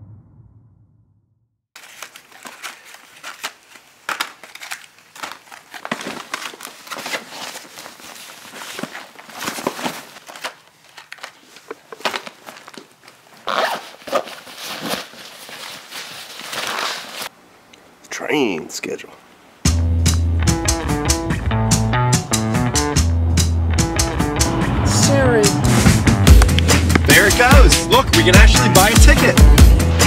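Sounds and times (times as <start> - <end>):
fabric backpack rustling: 1.8 - 17.3.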